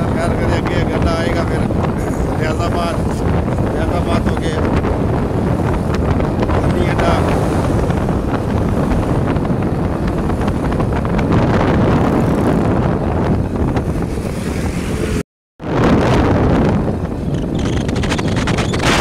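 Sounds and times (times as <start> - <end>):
wind buffeting microphone: 0.0 - 19.0
vehicle road noise: 1.6 - 15.2.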